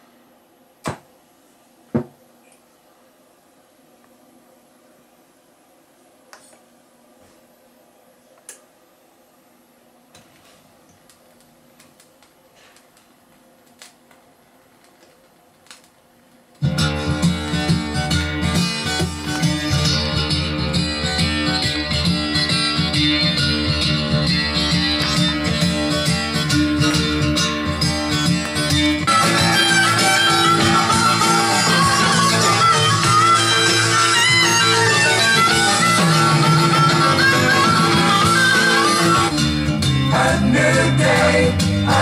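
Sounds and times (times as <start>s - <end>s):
low amplifier hum: 0.0s - 42.0s
loud recorded music on speakers: 16.6s - 42.0s.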